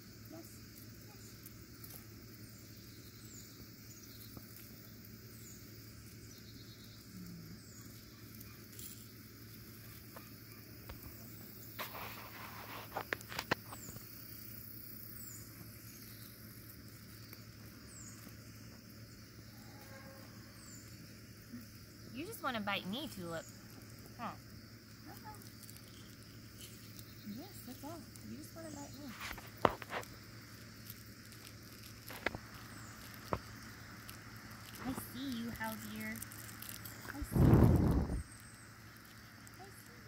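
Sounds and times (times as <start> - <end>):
crickets and insects chorus: 0.0 - 40.0
rustling and clicks: 7.8 - 14.2, 24.8 - 40.0.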